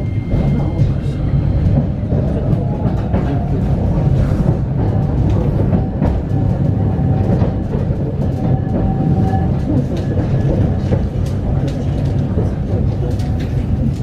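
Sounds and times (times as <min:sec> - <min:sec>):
streetcar rumbling: 0:00.0 - 0:14.0
wheels clicking on rails: 0:00.1 - 0:14.0.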